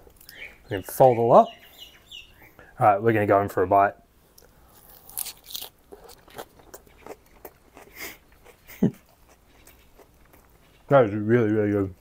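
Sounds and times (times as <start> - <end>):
crisp crunching: 4.4 - 10.7
wet chewing clicks: 4.4 - 10.9.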